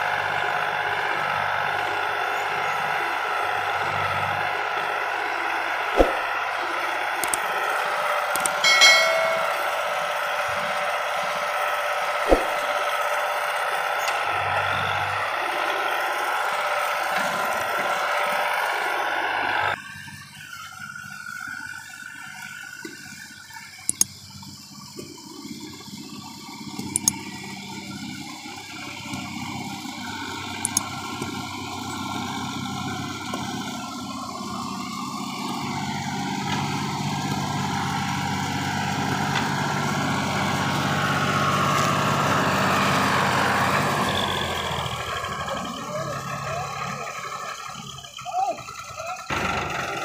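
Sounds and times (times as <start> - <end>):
tractor engine under load: 0.0 - 50.0
sharp clicks: 7.2 - 7.7, 8.3 - 9.7, 23.9 - 24.1, 26.7 - 27.2, 30.6 - 31.3.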